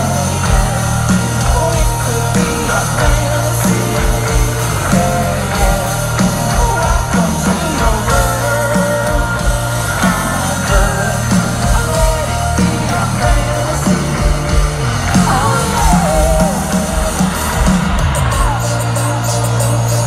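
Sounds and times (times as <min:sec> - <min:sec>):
drum beat: 0:00.0 - 0:19.9
electric guitars: 0:00.0 - 0:20.0
person singing: 0:00.0 - 0:20.0.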